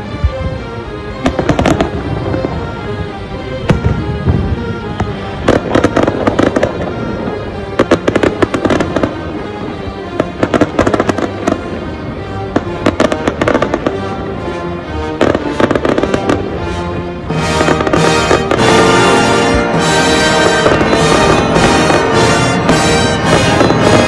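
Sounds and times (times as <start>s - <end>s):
music playing: 0.0s - 24.0s
fireworks popping and crackling: 1.2s - 2.6s, 3.7s - 9.3s, 10.2s - 11.8s, 12.5s - 14.0s, 17.5s - 24.0s.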